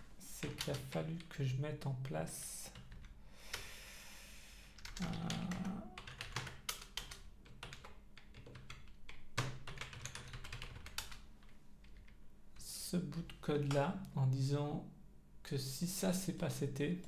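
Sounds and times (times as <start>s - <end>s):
keyboard typing: 0.4s - 1.3s, 4.8s - 12.2s.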